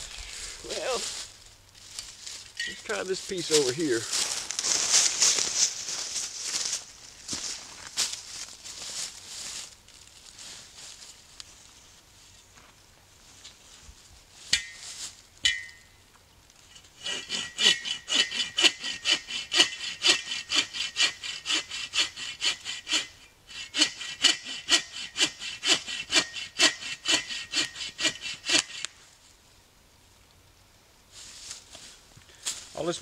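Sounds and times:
hand saw cutting branch: 0:16.8 - 0:29.0.

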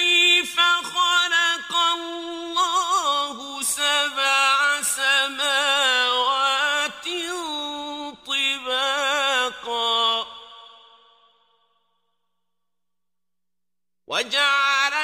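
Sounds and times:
man chanting melodic recitation: 0:14.1 - 0:15.0.

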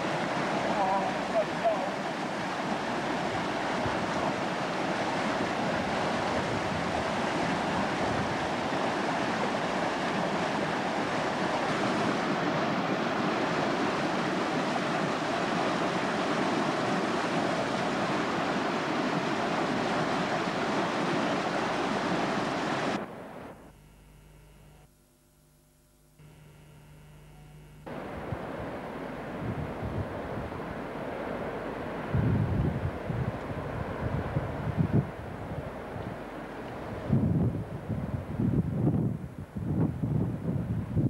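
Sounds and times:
river rushing over rocks: 0:00.0 - 0:23.5, 0:27.9 - 0:37.2.

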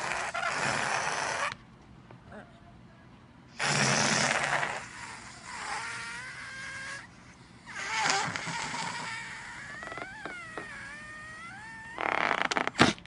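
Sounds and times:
balloon squealing whine: 0:05.5 - 0:07.1, 0:07.7 - 0:13.0.

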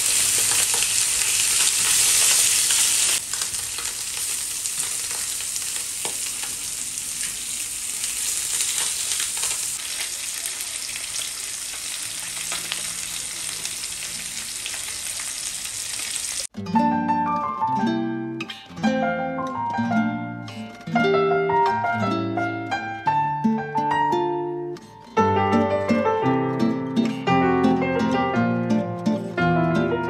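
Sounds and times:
fish sizzling in a pan: 0:00.0 - 0:16.5.

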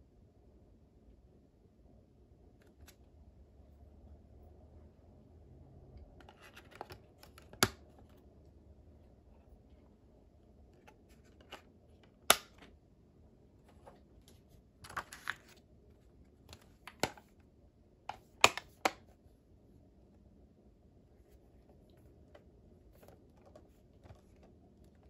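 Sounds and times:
plastic case clicking and snapping: 0:06.2 - 0:07.9, 0:11.4 - 0:12.7, 0:16.5 - 0:17.3, 0:18.1 - 0:19.1.

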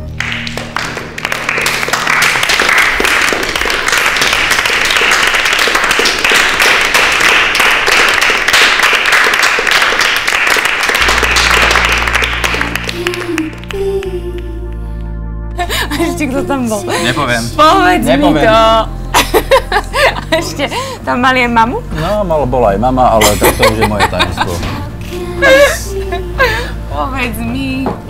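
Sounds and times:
audience applauding: 0:00.0 - 0:14.1
low held music notes: 0:11.0 - 0:28.0.

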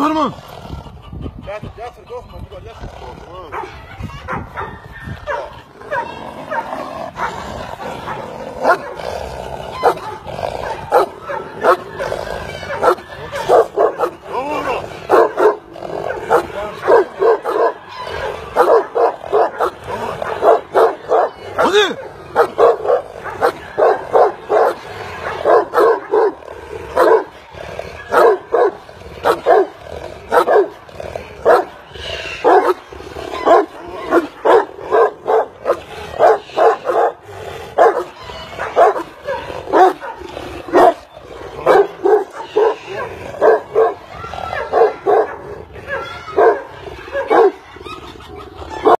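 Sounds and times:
large dogs barking: 0:00.0 - 0:49.0.

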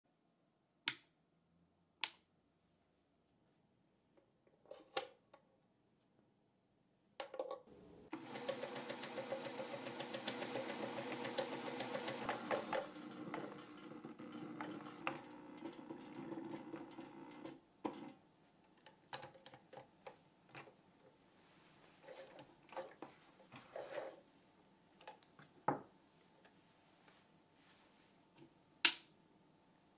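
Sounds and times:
sewing machine stitching: 0:08.1 - 0:18.2.

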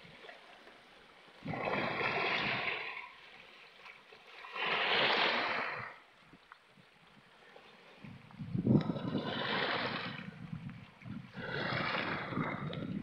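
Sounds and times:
waves splashing over rocks: 0:01.4 - 0:03.1, 0:08.6 - 0:10.5.

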